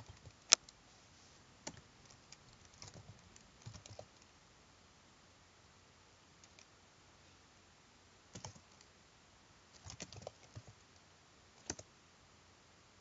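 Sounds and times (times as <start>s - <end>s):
keyboard typing: 0.0s - 0.8s, 1.6s - 4.3s, 6.4s - 6.7s, 8.3s - 8.9s, 9.8s - 10.8s, 11.6s - 11.9s
faint hiss: 0.0s - 13.0s.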